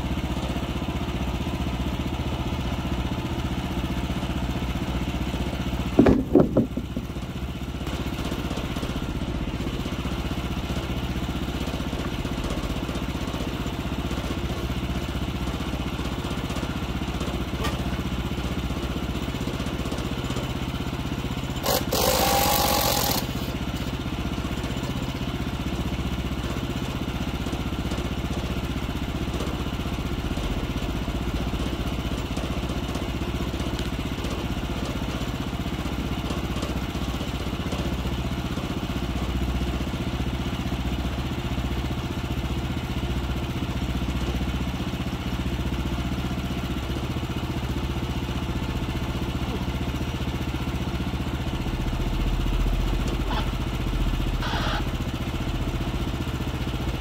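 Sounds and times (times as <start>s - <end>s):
sawmill engine idling: 0.0s - 57.0s
short metallic knocks: 6.0s - 7.2s.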